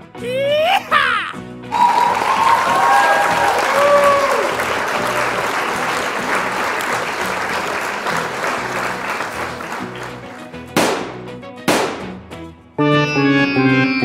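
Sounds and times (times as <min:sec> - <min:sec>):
applause-like hiss: 0:01.7 - 0:10.6.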